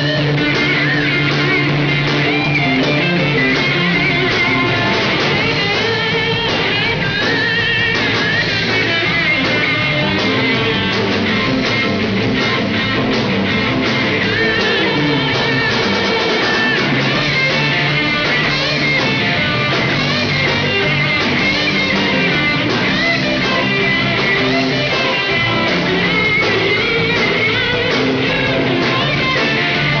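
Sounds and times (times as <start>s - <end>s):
bass guitar: 0.0s - 30.0s
drums: 0.0s - 30.0s
electric guitars: 0.0s - 30.0s.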